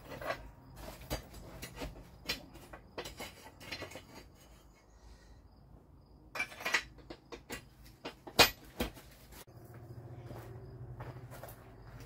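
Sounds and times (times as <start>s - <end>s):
steel parts clinking and knocking: 0.0s - 4.9s, 6.3s - 9.0s.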